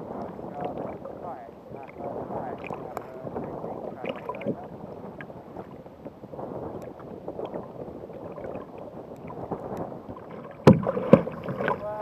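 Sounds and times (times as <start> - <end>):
water sloshing against kayak hull: 0.0 - 12.0
wind on microphone: 0.0 - 12.0
loud thump: 10.6 - 11.3.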